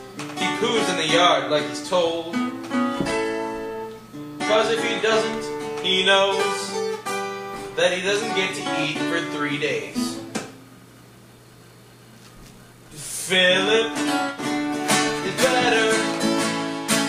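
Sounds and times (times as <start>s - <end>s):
acoustic guitars playing: 0.0s - 11.1s, 12.6s - 17.0s
person singing: 4.4s - 7.0s, 13.0s - 14.2s, 15.0s - 16.4s.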